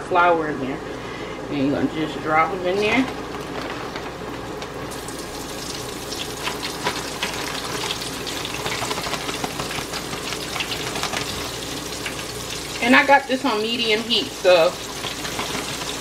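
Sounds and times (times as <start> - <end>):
chicken sizzling in hot oil: 4.9 - 16.0.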